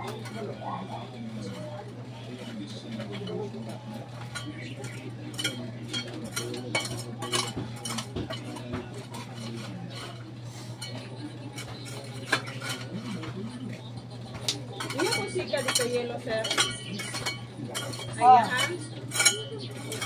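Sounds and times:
steady low hum: 0.0s - 20.0s
hand tools clinking on stones: 4.2s - 10.2s, 14.3s - 20.0s.

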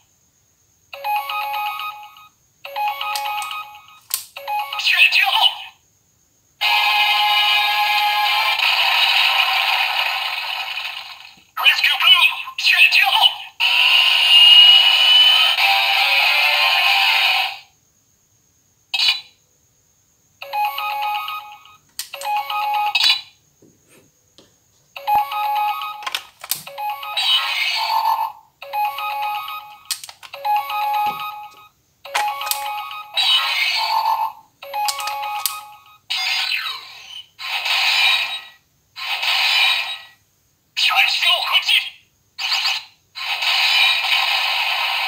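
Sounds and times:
toy electronic beeps and jingles: 1.0s - 5.8s, 20.4s - 23.4s, 25.0s - 38.6s
sharp clicks: 21.9s - 22.3s, 29.8s - 30.4s, 34.8s - 35.6s.

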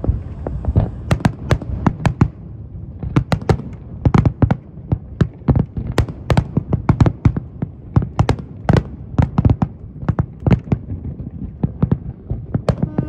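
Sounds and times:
low rumble: 0.0s - 4.1s
fireworks bangs: 0.0s - 13.0s.

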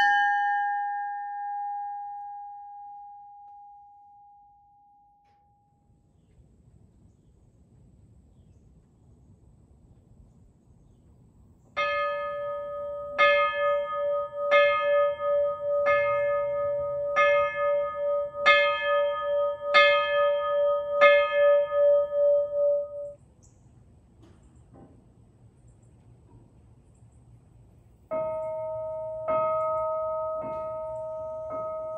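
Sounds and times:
locomotive bell ringing: 0.0s - 5.9s, 11.8s - 23.2s, 28.1s - 31.9s.

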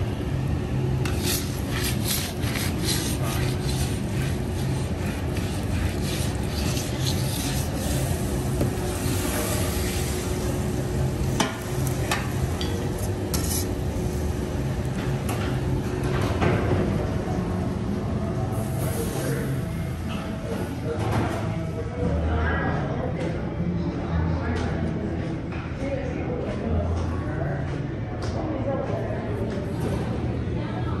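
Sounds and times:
steady hum: 0.0s - 26.3s
metal fork scraping a plate: 1.0s - 8.2s, 12.6s - 13.7s.

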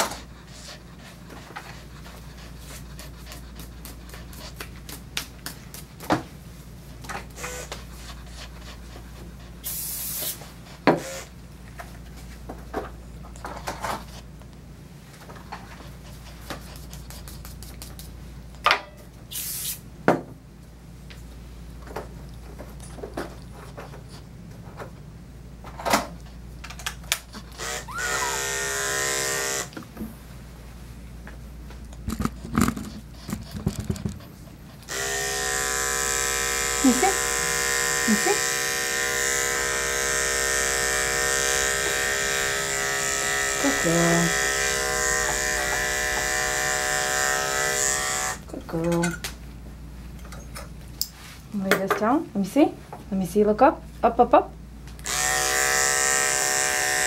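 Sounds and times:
electric clippers buzzing: 7.3s - 7.8s, 10.9s - 11.3s, 27.5s - 29.8s, 34.9s - 48.5s, 55.0s - 57.0s
coolant spray hisses: 9.7s - 10.4s
grooming tools clicking: 34.8s - 49.3s, 54.9s - 57.0s.

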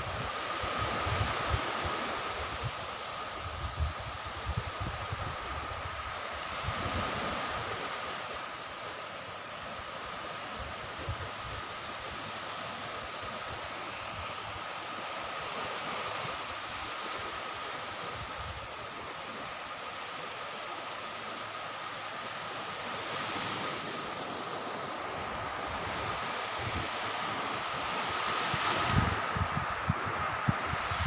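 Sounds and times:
waves washing onto beach: 0.0s - 31.0s
wind buffeting microphone: 27.8s - 31.0s.

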